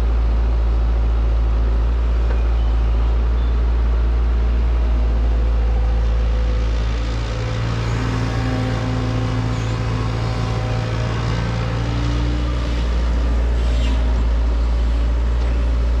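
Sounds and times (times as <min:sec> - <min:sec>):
heavy diesel engine running: 0:00.0 - 0:16.0.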